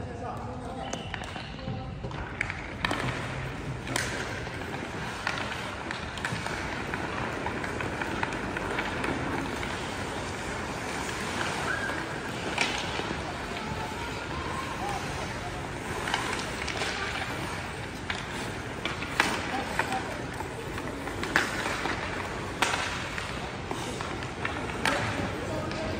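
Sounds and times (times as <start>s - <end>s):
hockey sticks and puck clacking: 0.0s - 25.9s
skate blades scraping ice: 2.3s - 25.9s.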